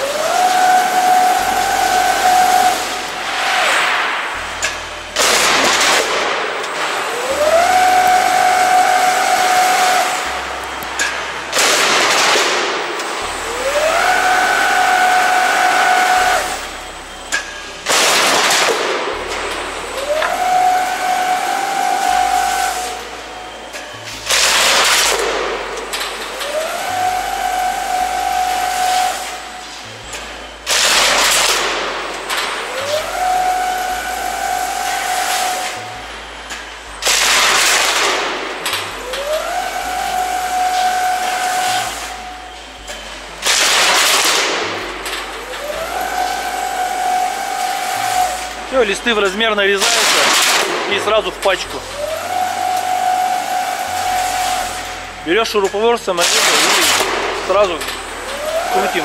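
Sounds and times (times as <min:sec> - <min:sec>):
loud hissing burst: 0:00.0 - 0:42.8
background music: 0:00.0 - 0:59.0
rising machine whine: 0:00.0 - 0:59.0.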